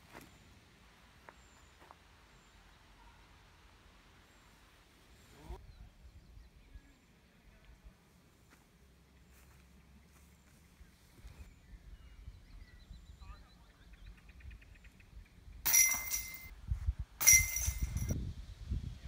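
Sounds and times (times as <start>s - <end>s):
faint bird chirps: 9.2s - 15.4s
metal basket chain rattle: 15.7s - 16.5s, 17.2s - 18.2s.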